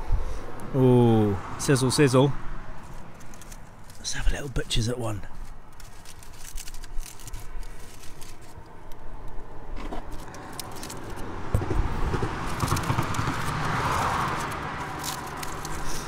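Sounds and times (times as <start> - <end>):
aluminium foil crinkling: 2.8 - 9.1, 9.8 - 11.3, 12.3 - 16.0.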